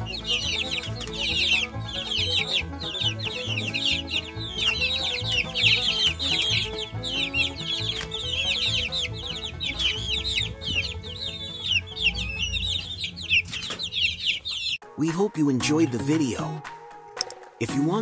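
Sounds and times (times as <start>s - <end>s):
baby chicks peeping: 0.0s - 14.8s
background music with low beat: 0.0s - 18.0s.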